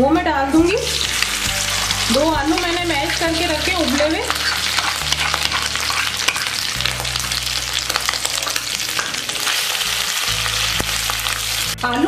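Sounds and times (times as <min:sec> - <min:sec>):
potatoes sizzling in oil: 0:00.6 - 0:12.0
wooden spatula stirring: 0:01.2 - 0:09.7.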